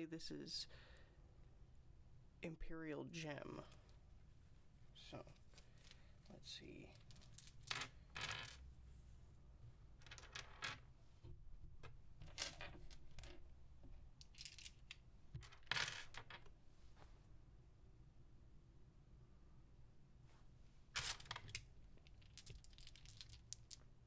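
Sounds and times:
plastic dice clattering on wood: 6.9 - 8.6, 10.0 - 10.9, 11.8 - 16.5, 21.0 - 24.0.

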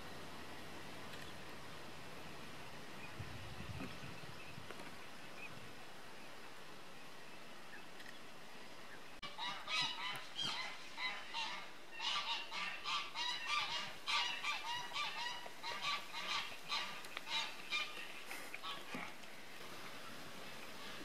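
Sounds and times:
faint steady hiss: 0.0 - 21.0
geese honking: 9.2 - 19.1.

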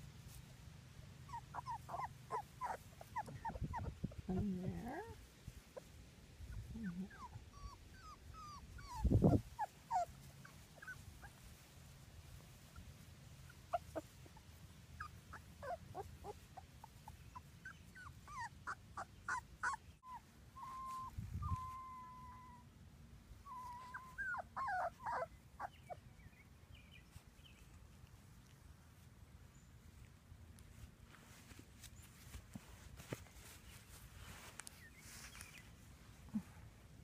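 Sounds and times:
puppies whimpering and squeaking: 1.3 - 5.2, 6.5 - 11.6, 12.6 - 22.6, 23.4 - 26.0.

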